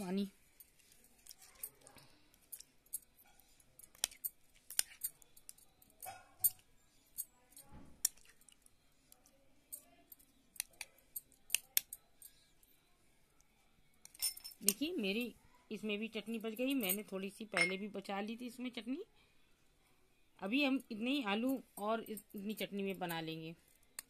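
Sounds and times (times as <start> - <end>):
spoon clinking against glass bowl: 17.6 - 17.9.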